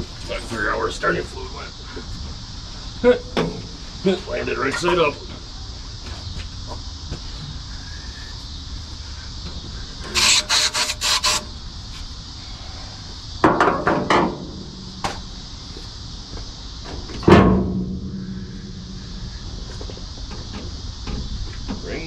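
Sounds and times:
short ringing hum: 14.3 - 15.7, 17.2 - 20.4
loud thud: 17.2 - 20.7.

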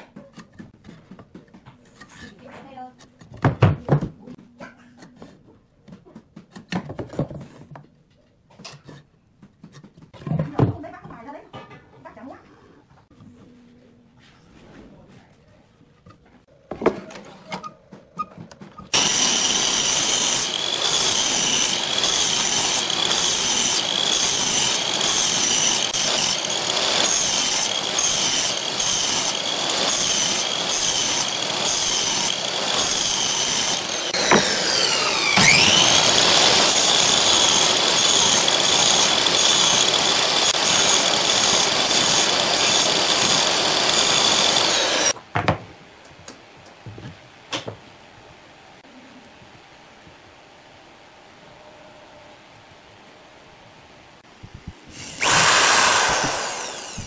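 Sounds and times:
saw blade cutting wood: 18.9 - 45.2, 55.0 - 57.0
miter saw motor whine: 19.0 - 45.1, 55.0 - 57.0.

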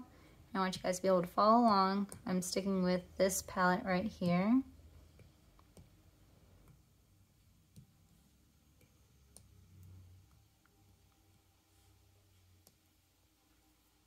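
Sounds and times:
stylus tapping glass screen: 5.0 - 11.2.

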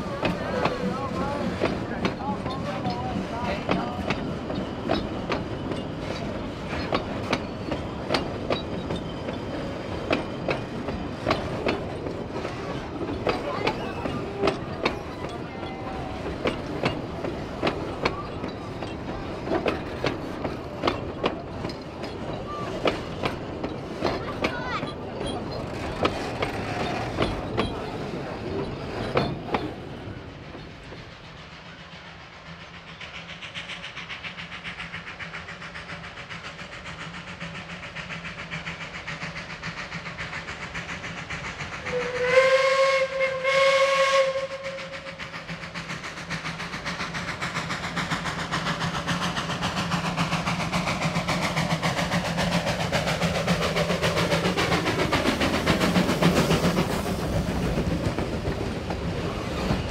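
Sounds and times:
train carriages clattering: 0.0 - 42.5, 44.8 - 59.9
steam locomotive chuffing: 0.0 - 59.9
steam locomotive whistle: 41.8 - 45.2.

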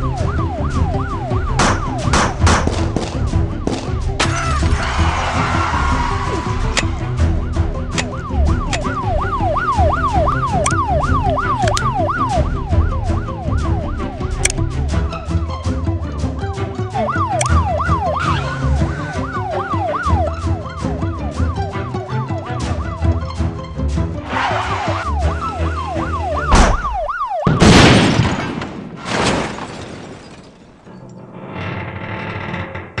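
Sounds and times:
police siren yelp: 0.0 - 2.1, 4.3 - 14.6, 16.9 - 23.3, 24.3 - 27.6.

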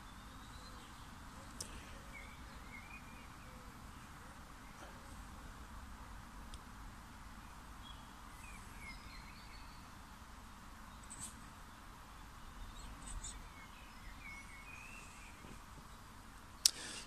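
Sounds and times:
birds chirping and twittering: 0.0 - 17.0
low background noise: 0.0 - 17.0.

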